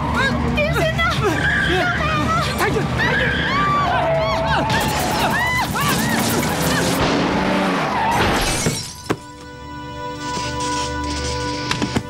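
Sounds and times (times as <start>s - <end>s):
people screaming: 1.2s - 7.0s
dramatic music: 4.5s - 12.0s
shattering glass: 8.1s - 9.2s.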